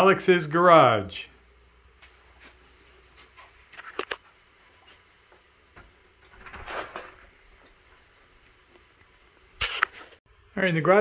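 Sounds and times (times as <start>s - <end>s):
brief rustle: 9.6s - 10.2s.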